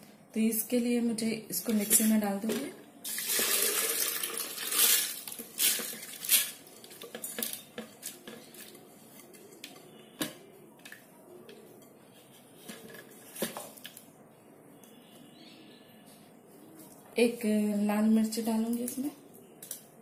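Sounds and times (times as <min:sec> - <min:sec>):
grains pouring into plastic jar: 0:03.0 - 0:06.5.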